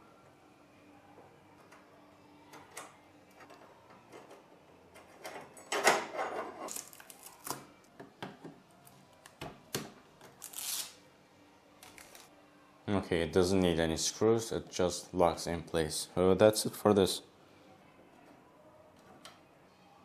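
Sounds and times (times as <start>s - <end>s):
plastic film peeling off: 6.7s - 7.6s, 10.4s - 11.0s.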